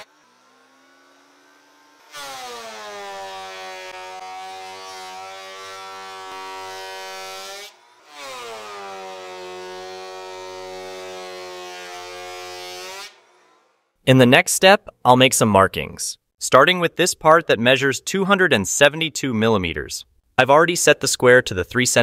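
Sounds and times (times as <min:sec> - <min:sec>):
thickness planer motor whine: 0:00.0 - 0:13.8.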